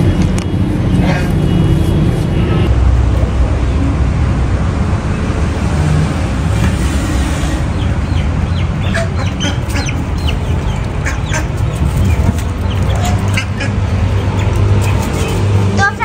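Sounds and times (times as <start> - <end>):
steady low rumble: 0.0 - 16.0
poultry chirping and clucking: 1.0 - 1.4, 7.5 - 15.8.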